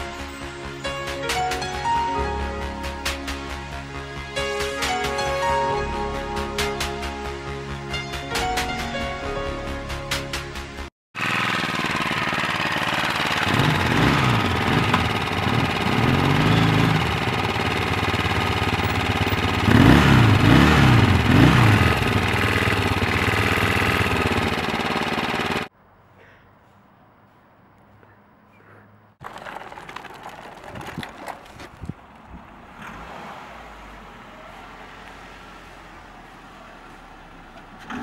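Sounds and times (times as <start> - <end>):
faint outdoor background: 0.0 - 38.0
motorcycle engine revving: 11.2 - 25.7, 35.2 - 38.0.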